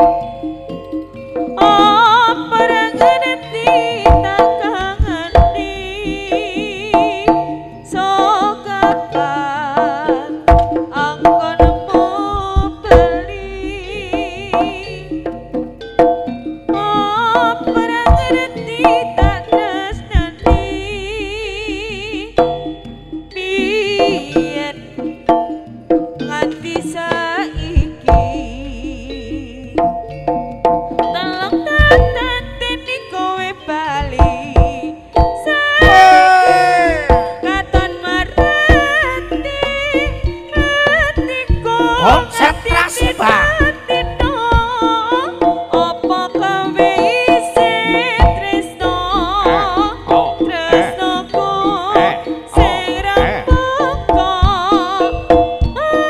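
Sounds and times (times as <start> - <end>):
high melody with vibrato: 0.0 - 26.9, 41.8 - 44.2, 46.2 - 54.2
gamelan music: 0.0 - 56.0
hand drums beating: 1.4 - 13.3, 14.1 - 20.8, 24.0 - 28.3, 29.8 - 32.4, 34.2 - 56.0
ringing metal percussion: 14.2 - 20.9, 21.9 - 28.3
hand drum strokes: 14.5 - 20.8, 34.6 - 39.0, 49.4 - 56.0.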